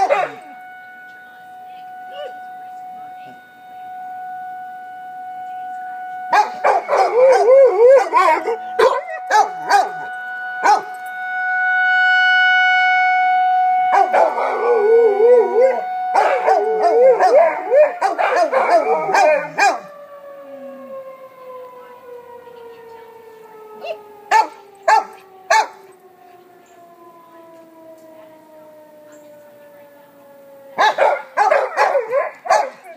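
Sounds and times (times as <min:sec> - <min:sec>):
dog barking: 0:00.0 - 0:00.5, 0:06.3 - 0:07.4, 0:08.0 - 0:10.0, 0:10.6 - 0:10.9, 0:13.9 - 0:14.6, 0:16.2 - 0:16.6, 0:17.2 - 0:19.8, 0:23.8 - 0:25.8, 0:30.8 - 0:32.9
dogs howling: 0:00.0 - 0:00.6, 0:06.3 - 0:11.0, 0:13.9 - 0:21.8, 0:23.7 - 0:26.0, 0:30.6 - 0:32.9
warning siren: 0:00.0 - 0:32.9.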